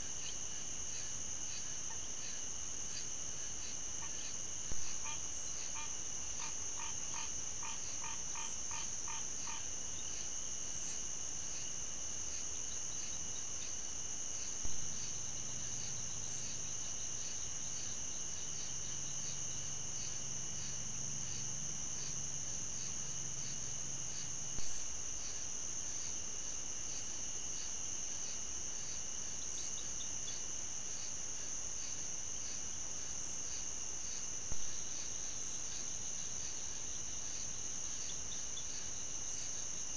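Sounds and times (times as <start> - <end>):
insects buzzing and chirping: 0.0 - 39.9
frog calling: 4.9 - 9.7.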